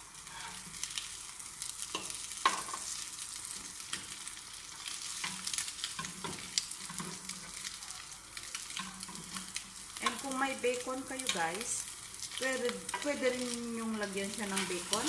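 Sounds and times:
bread sizzling in butter: 0.0 - 15.0
spatula scraping a pan: 0.2 - 0.9.

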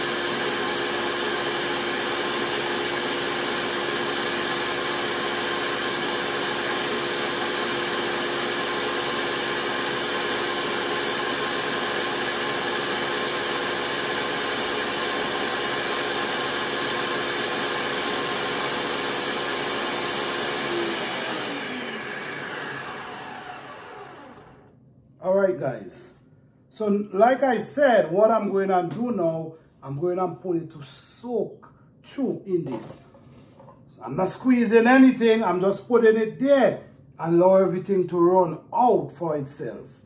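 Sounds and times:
blender whirring: 0.0 - 24.8.

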